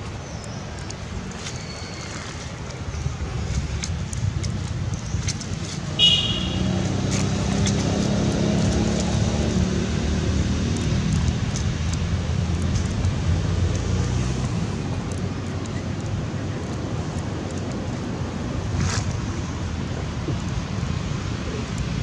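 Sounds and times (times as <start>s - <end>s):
vehicle engine passing: 6.1s - 14.9s.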